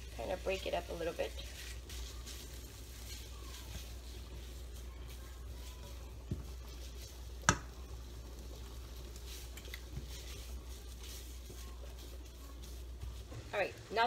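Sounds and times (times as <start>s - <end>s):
faint sizzle: 0.0s - 14.0s
spatula stirring in frying pan: 0.0s - 14.0s
spatula knocking pan: 7.4s - 7.8s.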